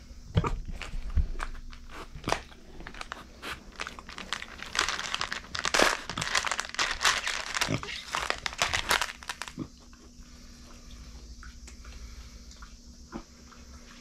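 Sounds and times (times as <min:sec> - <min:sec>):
pebbles clicking and crunching: 0:00.4 - 0:09.7.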